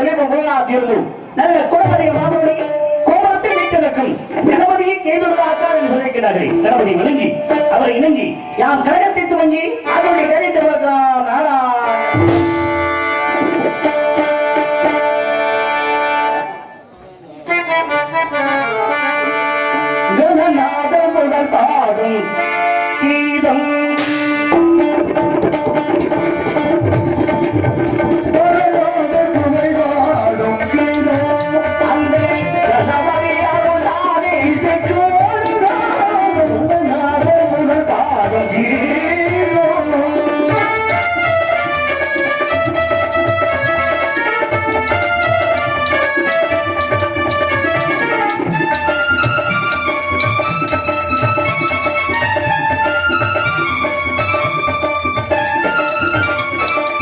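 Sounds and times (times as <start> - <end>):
tabla playing: 0.0 - 16.8, 17.5 - 57.0
keyboard melody: 11.9 - 16.9, 17.5 - 20.8, 21.4 - 57.0
man singing: 28.2 - 42.1.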